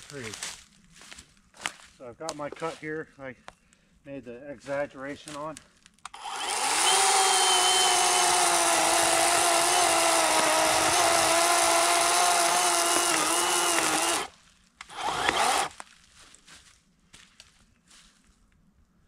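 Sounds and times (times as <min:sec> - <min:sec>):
electric chainsaw cutting wood: 0:06.1 - 0:15.7.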